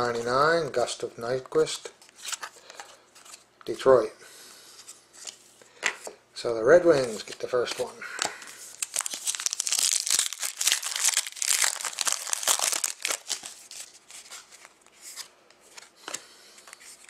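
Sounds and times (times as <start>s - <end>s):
cards rustling and clicking: 6.9s - 17.0s
foil wrapper tearing and crinkling: 8.7s - 14.3s.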